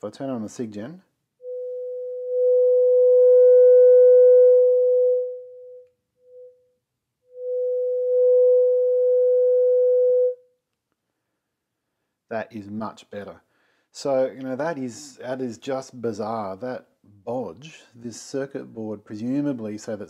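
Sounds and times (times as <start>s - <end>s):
sine test tone: 1.4s - 10.5s.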